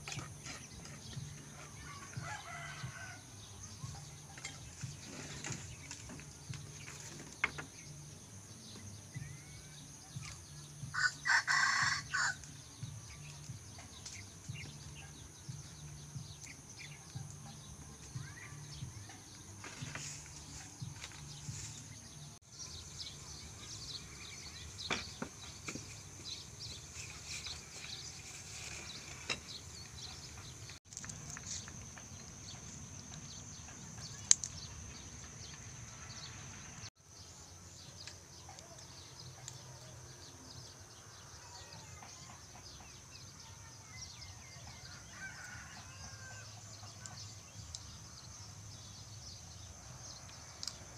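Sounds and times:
rooster crowing: 1.8 - 3.3, 10.9 - 12.4.

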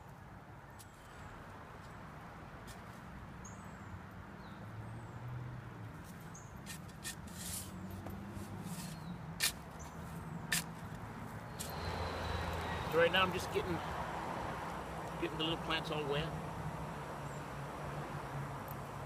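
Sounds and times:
shovel scraping into dry soil: 6.1 - 10.8.

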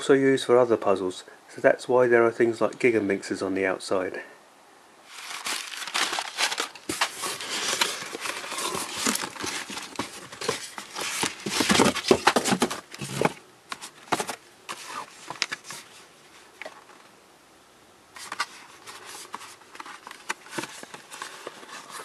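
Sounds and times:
packing paper crackling rustle: 5.0 - 17.0, 18.2 - 22.0.

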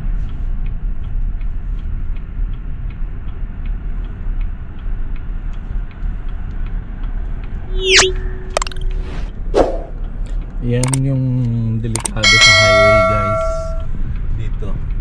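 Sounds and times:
engine and tyre rumble: 0.0 - 7.7, 13.8 - 15.0
whoosh settling into held tone: 7.6 - 10.0
faint regular ticking: 10.1 - 15.0
short sharp click: 12.0 - 13.8.

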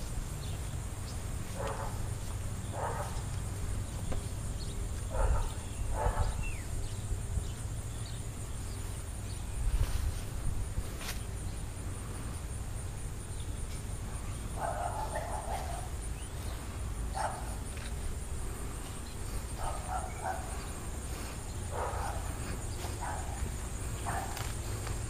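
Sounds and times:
dog barking: 1.6 - 2.0, 2.7 - 3.2, 5.1 - 6.5, 14.6 - 16.0, 17.1 - 17.6, 19.6 - 20.5, 21.7 - 22.3, 22.9 - 24.4.

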